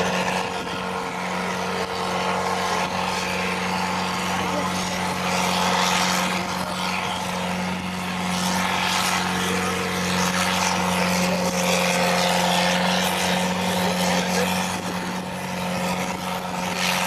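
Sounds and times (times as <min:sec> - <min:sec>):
tractor engine at high revs: 0:00.0 - 0:17.0.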